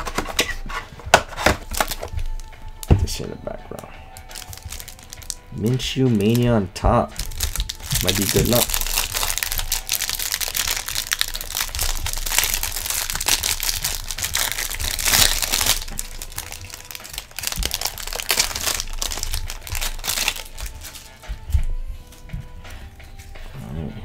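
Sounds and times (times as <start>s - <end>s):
plastic wrapper crinkling: 1.3s - 2.4s, 4.2s - 5.4s, 6.1s - 6.5s, 7.2s - 22.2s.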